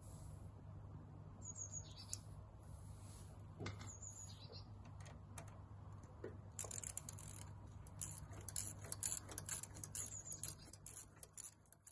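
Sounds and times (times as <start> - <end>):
ratchet wrench clicking: 6.5 - 11.9.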